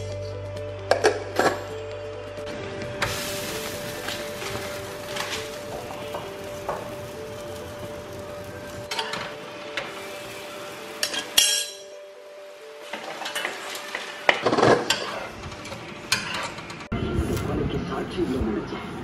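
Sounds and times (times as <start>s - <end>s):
flatbread sizzling on griddle: 3.0s - 11.8s
metal utensils and pans clinking: 4.1s - 6.9s, 8.9s - 10.0s, 11.0s - 12.0s, 12.9s - 16.9s.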